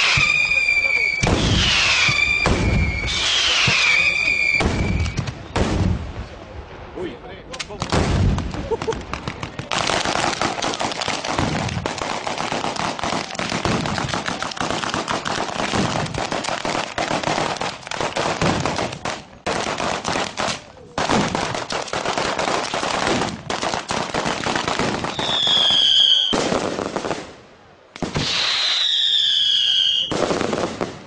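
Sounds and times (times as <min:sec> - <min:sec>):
whistling firework: 0:00.0 - 0:05.9, 0:24.8 - 0:26.6, 0:28.0 - 0:31.0
firecrackers crackling: 0:00.0 - 0:31.0.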